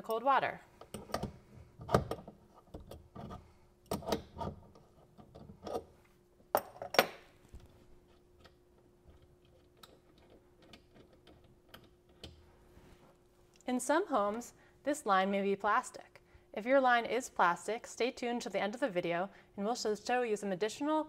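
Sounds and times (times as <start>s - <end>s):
faint steady hum: 0.0s - 21.0s
metallic clicks of nut loosening: 8.1s - 12.4s.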